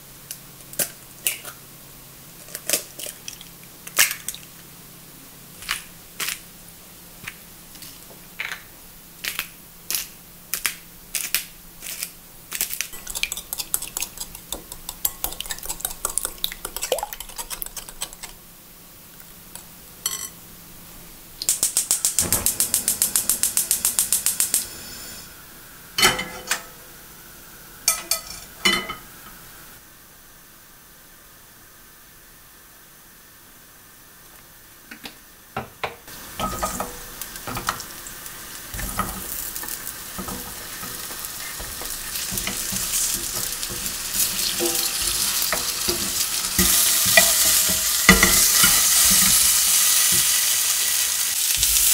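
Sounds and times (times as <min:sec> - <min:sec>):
frying pan knocking on grate: 0:38.8 - 0:49.4.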